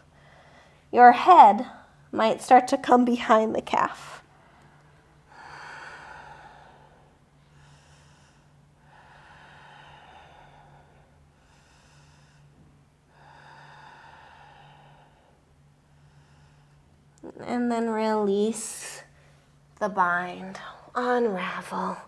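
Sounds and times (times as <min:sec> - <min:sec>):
woman breathing slowly: 0:00.0 - 0:00.9, 0:04.2 - 0:17.2
faint low hum: 0:00.0 - 0:22.0.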